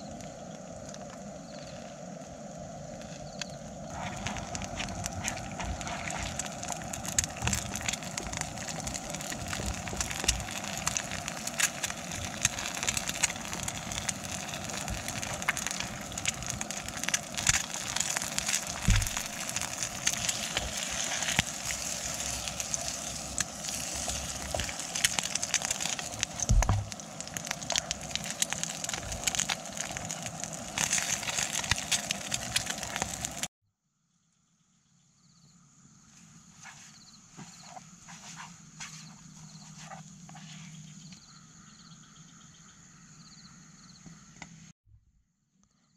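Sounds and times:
eggs sizzling in oil: 3.9 - 33.5.

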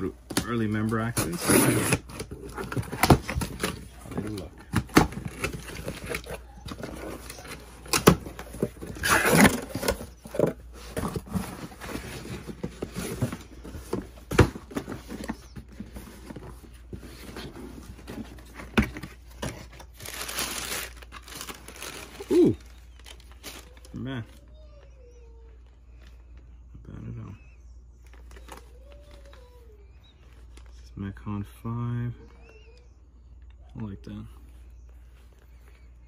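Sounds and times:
cardboard ripping: 1.0 - 13.5, 17.0 - 23.8
tissue paper rustling: 19.9 - 23.9.

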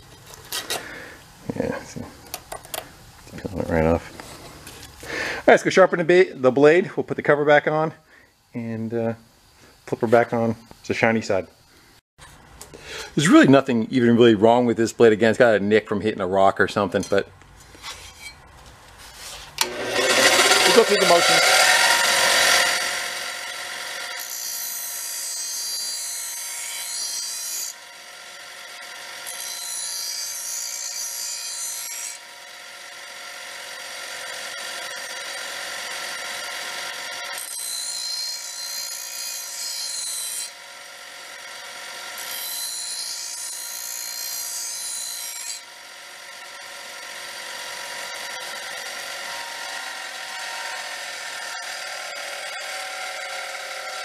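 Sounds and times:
blade grinding scraping hiss: 16.8 - 23.3
grinder motor humming: 19.6 - 24.3, 40.5 - 42.3, 45.6 - 54.0.

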